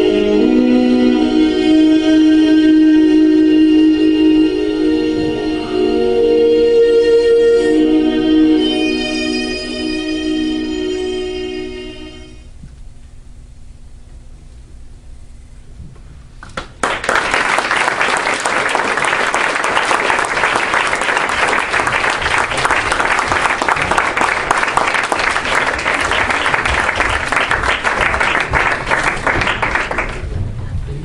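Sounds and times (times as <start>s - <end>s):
audience applauding: 16.6s - 30.3s.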